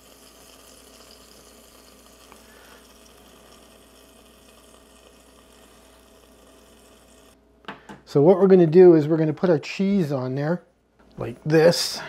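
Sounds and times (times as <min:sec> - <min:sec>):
burger patty sizzling: 0:00.0 - 0:07.4.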